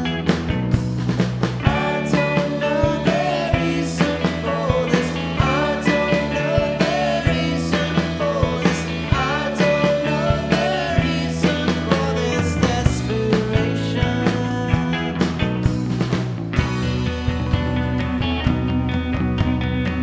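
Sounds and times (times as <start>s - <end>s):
bass guitar: 0.0s - 20.0s
drum kit beat: 0.0s - 20.0s
electric guitars: 0.0s - 20.0s
lead vocal singing: 1.6s - 15.4s.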